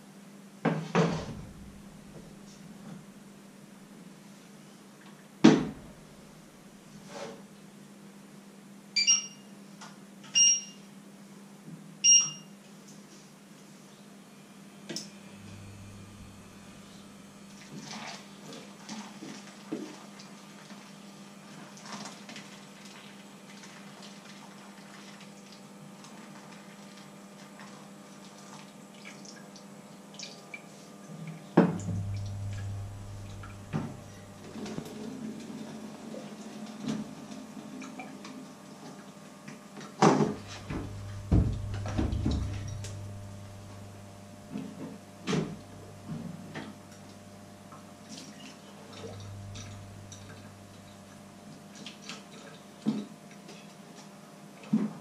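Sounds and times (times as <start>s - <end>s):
low steady hum: 1.0s - 4.7s, 5.5s - 7.0s, 13.7s - 19.6s, 29.8s - 39.1s, 39.8s - 53.7s
appliance beeps: 9.0s - 9.5s, 10.3s - 10.8s, 12.0s - 12.6s, 31.8s - 34.4s
water running at sink: 31.6s - 36.5s, 40.3s - 43.7s, 47.7s - 52.6s.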